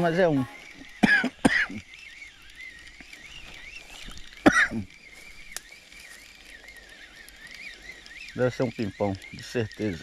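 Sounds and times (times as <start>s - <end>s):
faint outdoor background: 0.0s - 10.0s
man coughing: 1.0s - 1.8s, 4.4s - 4.9s.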